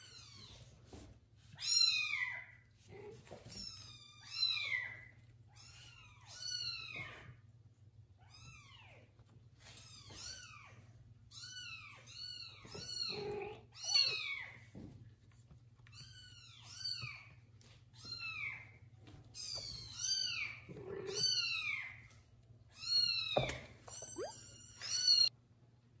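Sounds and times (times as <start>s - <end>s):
kittens mewing: 20.2s - 21.7s.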